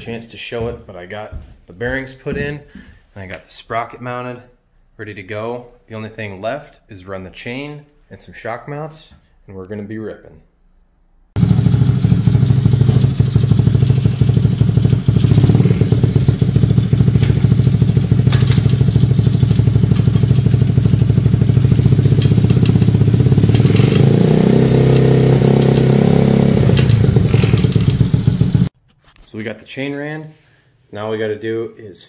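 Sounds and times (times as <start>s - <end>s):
small engine running: 11.4s - 28.7s
track chain clatter: 17.0s - 20.7s, 21.5s - 28.1s.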